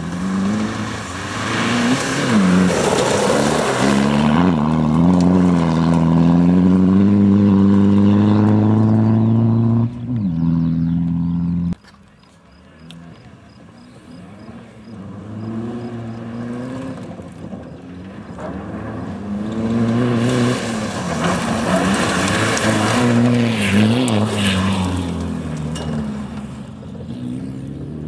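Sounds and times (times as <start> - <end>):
gravel spraying from tyres: 0.0 - 6.1, 17.1 - 26.7
rally car accelerating: 0.0 - 11.8, 12.8 - 28.0.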